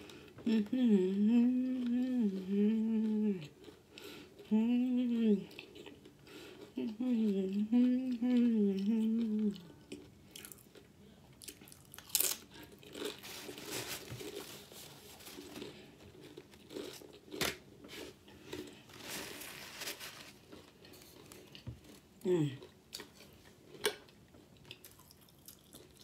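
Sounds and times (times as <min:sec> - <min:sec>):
crunching and chewing chips: 0:01.5 - 0:04.5, 0:05.4 - 0:26.0.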